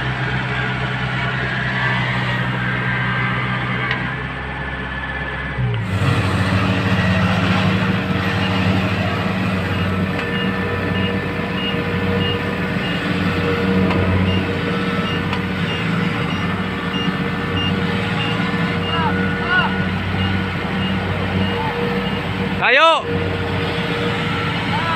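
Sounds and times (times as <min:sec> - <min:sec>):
diesel engine running: 0:00.0 - 0:24.9
reverse alarm beeping: 0:08.0 - 0:22.5.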